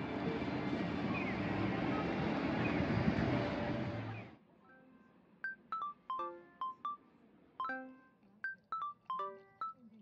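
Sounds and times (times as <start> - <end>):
street noise: 0.0 - 6.2
soft background music with bell notes: 4.7 - 7.0, 7.6 - 9.9.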